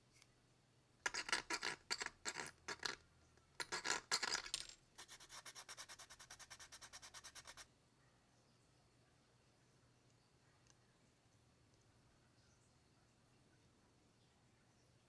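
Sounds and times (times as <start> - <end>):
knife blade scraping plastic: 1.1 - 3.0.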